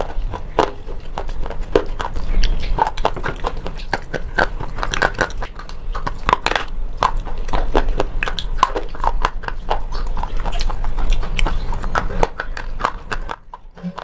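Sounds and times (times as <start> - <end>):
crisp chewing crunches: 0.0 - 14.0.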